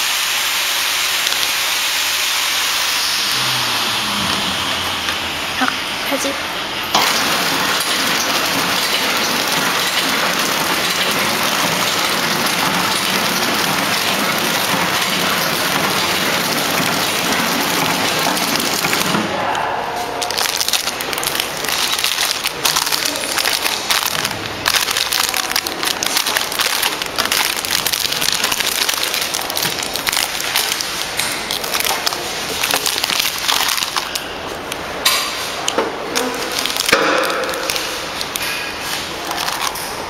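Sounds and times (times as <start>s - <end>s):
plastic film crinkling: 1.2s - 1.6s, 7.3s - 19.2s, 20.1s - 39.9s.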